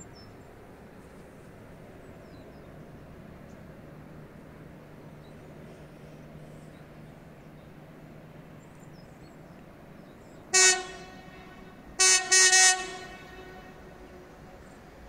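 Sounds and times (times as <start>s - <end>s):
train horn blast: 10.5s - 15.0s.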